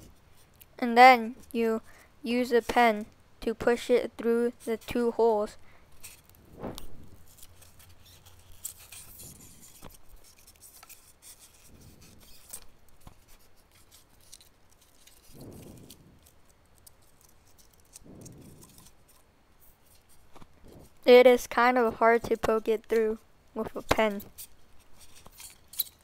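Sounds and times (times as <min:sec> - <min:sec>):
pen scraping through styrofoam: 0:06.0 - 0:16.4.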